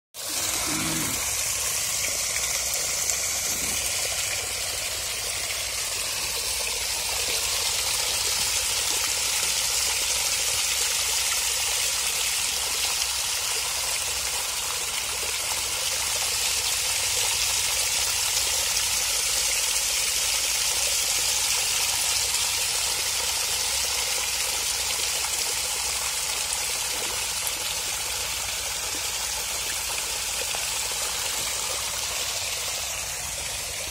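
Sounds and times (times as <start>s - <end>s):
water gushing from pipe: 0.2s - 33.9s.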